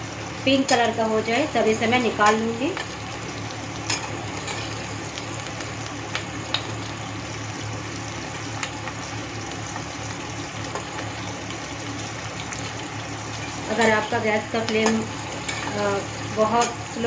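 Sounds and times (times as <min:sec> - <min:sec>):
vegetables sizzling in hot oil: 0:00.0 - 0:17.0.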